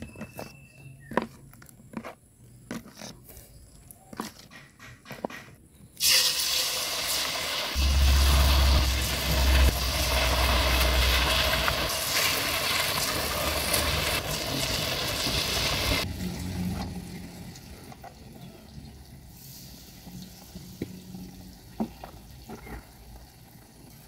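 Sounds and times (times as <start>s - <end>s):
food sizzling in hot oil: 6.0s - 16.1s
low rumble: 7.8s - 16.5s.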